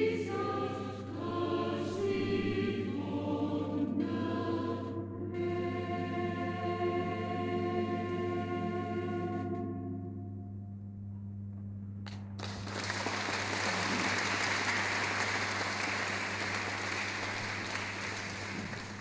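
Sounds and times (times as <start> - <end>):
audience applause: 12.4 - 19.0.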